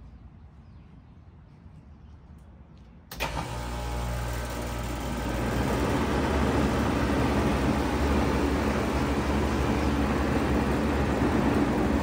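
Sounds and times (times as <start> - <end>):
heat pump clunk: 3.1 - 12.0
heat pump hum and fan rush: 3.1 - 12.0.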